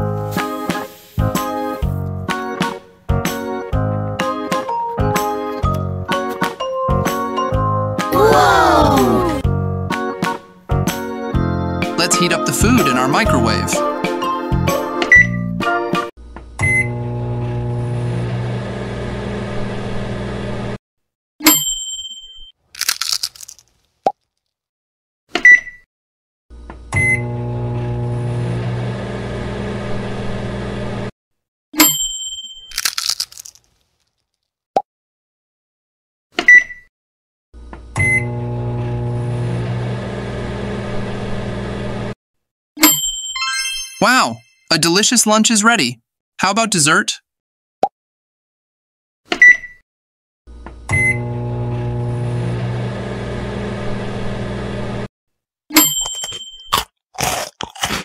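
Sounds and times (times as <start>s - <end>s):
microwave oven humming: 16.2s - 20.8s, 26.6s - 31.1s, 37.6s - 42.2s, 50.5s - 55.1s
microwave beep: 16.6s - 17.0s, 27.0s - 27.3s, 36.5s - 36.9s, 38.0s - 38.4s, 49.4s - 49.8s, 50.9s - 51.4s.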